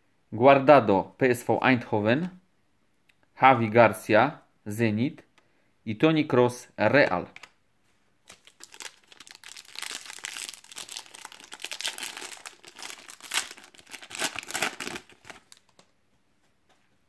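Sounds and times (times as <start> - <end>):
foil wrapper crinkling: 8.3 - 15.8.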